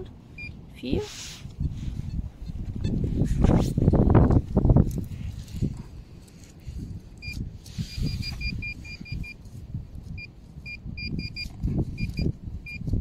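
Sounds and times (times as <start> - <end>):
metal detector pinpointer beeping: 0.4 - 0.6, 7.2 - 9.5, 10.1 - 12.9.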